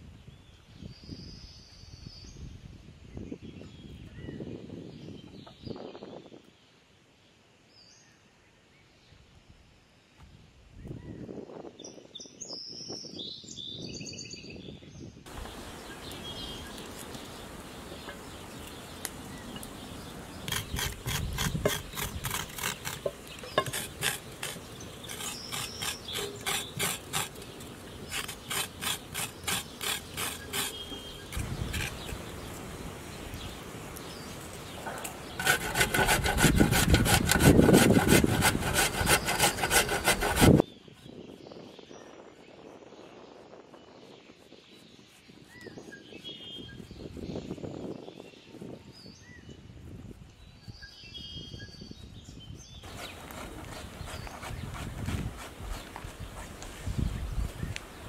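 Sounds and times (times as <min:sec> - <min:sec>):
knife peeling potatoes: 0:20.4 - 0:32.2, 0:35.4 - 0:40.6
carrot rasping on metal grater: 0:20.5 - 0:32.1, 0:35.3 - 0:40.6, 0:52.9 - 0:56.1.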